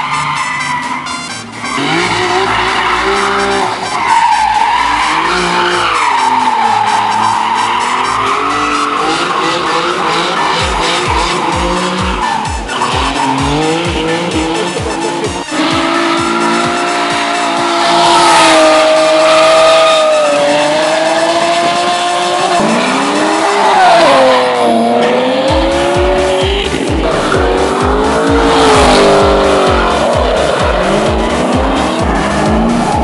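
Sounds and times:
tyre squeal: 0.0s - 25.7s
car engine revving: 0.0s - 33.0s.

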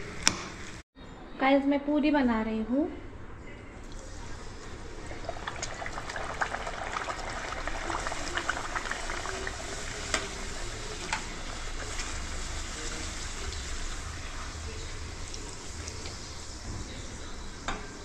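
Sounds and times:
frying in hot oil sizzling: 3.9s - 18.0s.

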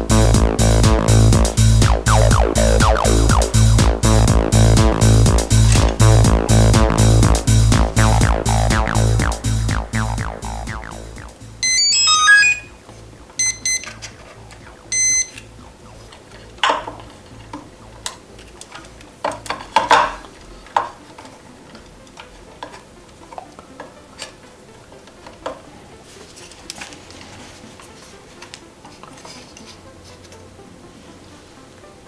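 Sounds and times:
electronic beeps: 1.8s - 3.9s, 8.0s - 12.8s, 13.4s - 13.9s, 14.6s - 16.2s.

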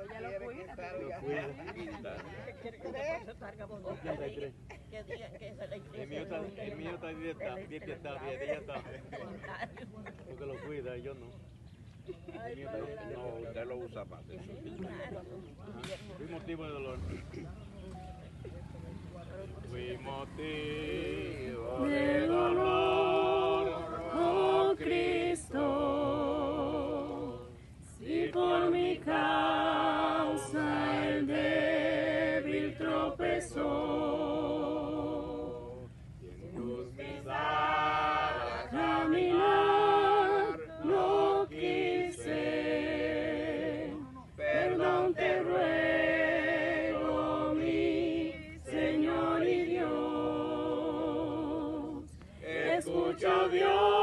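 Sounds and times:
group singing a hymn: 19.6s - 54.0s.

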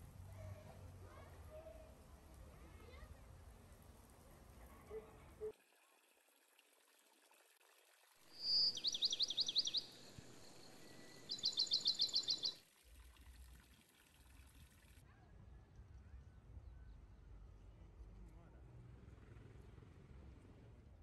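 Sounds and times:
bird singing high trills: 8.3s - 12.6s.

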